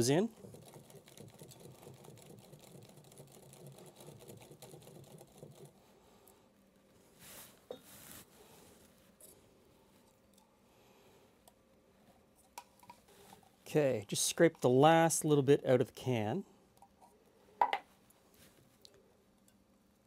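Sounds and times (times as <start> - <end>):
whisk ticking in glass bowl: 0.4 - 5.7.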